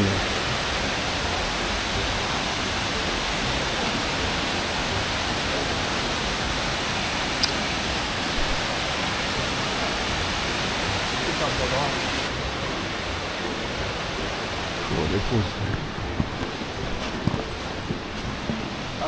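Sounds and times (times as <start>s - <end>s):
waterfall rushing: 0.0s - 19.0s.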